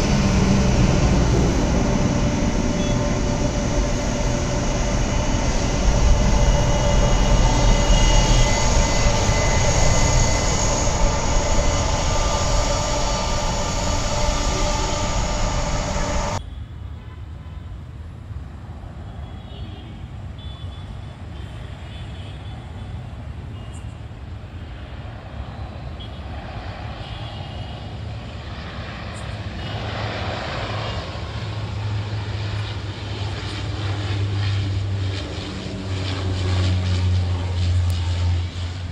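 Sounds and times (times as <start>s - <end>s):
turboprop plane drone: 0.0s - 16.4s, 24.0s - 38.9s
loud jet engine: 0.0s - 16.5s, 24.4s - 38.9s.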